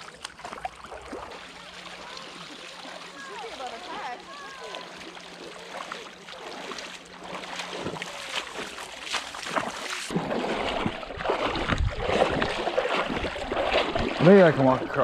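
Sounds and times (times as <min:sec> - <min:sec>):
river water rippling and splashing: 0:00.0 - 0:15.0
wind noise on microphone: 0:10.8 - 0:14.1.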